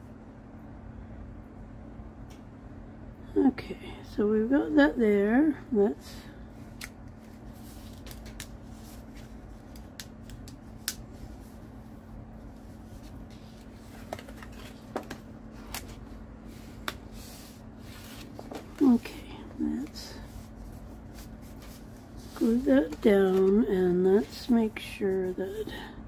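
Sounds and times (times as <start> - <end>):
low room hum: 0.0 - 26.0
paper rustling: 7.2 - 10.4, 12.4 - 19.1, 19.8 - 25.4.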